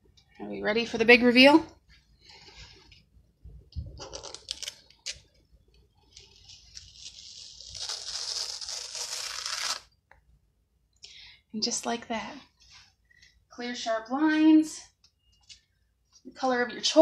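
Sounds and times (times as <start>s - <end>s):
transfer peeling crackles: 6.2s - 9.9s
tearing hiss of peeling stencil: 6.7s - 9.9s.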